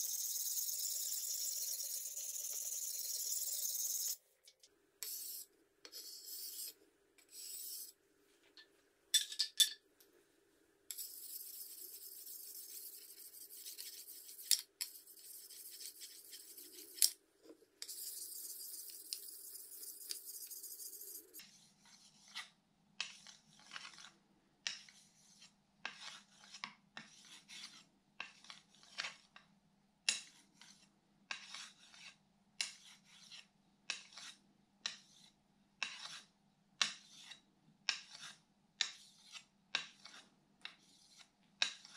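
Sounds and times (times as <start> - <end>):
sharpening stone scraping blade: 0.0 - 4.2, 5.0 - 7.9, 10.9 - 17.2, 17.8 - 21.5.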